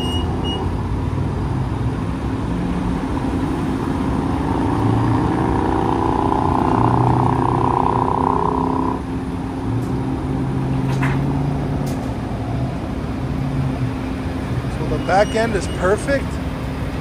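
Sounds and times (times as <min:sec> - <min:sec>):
diesel engine running fast: 0:00.0 - 0:17.0.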